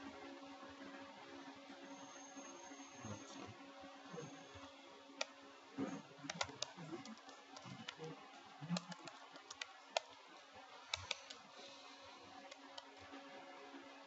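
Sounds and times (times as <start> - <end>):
keyboard key clicks: 6.2 - 8.1, 8.7 - 10.2, 10.9 - 11.4.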